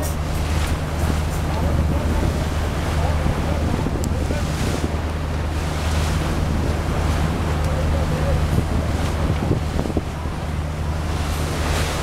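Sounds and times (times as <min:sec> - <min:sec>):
boat engine humming: 0:00.0 - 0:12.0
sea wash: 0:00.0 - 0:12.0
wind buffeting microphone: 0:00.0 - 0:12.0.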